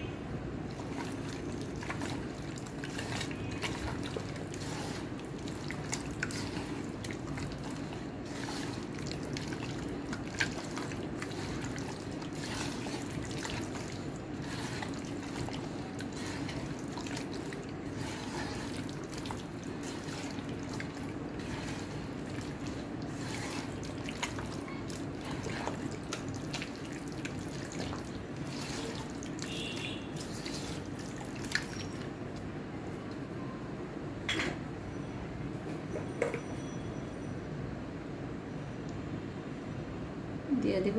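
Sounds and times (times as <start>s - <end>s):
wet squelching of meat: 0.7s - 32.1s.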